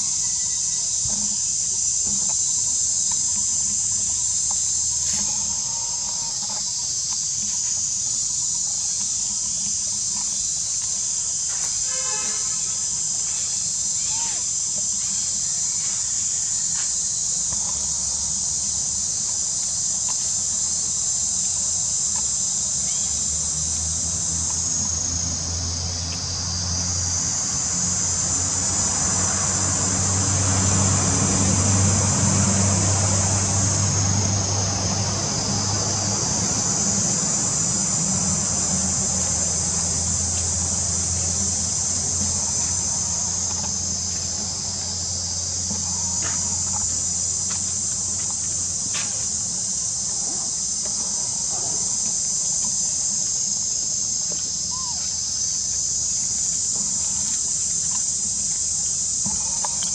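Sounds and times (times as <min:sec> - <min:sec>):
insects buzzing: 0:00.0 - 0:59.9.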